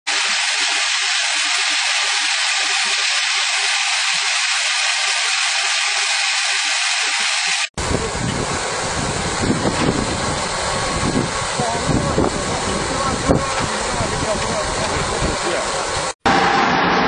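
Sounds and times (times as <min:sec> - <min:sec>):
corn kernels pouring into hopper: 0:00.1 - 0:07.7.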